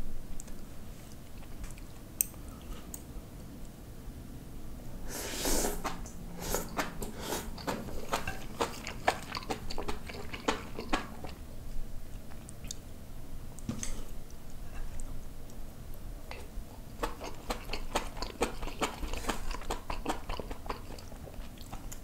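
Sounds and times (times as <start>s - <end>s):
person chewing food: 0.5s - 3.1s, 5.5s - 11.5s, 12.1s - 12.8s, 16.3s - 22.0s.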